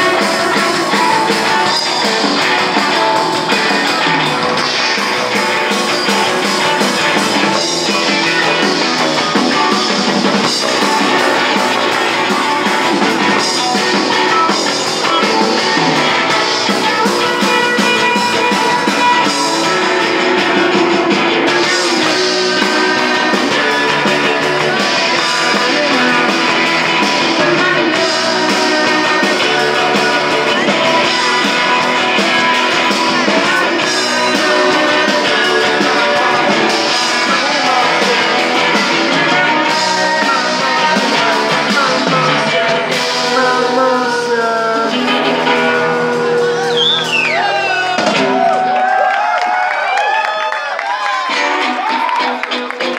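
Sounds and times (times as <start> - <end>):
person singing: 0.0 - 48.3
electric bass: 0.0 - 50.0
drum kit: 0.0 - 52.9
electric guitar: 0.0 - 52.9.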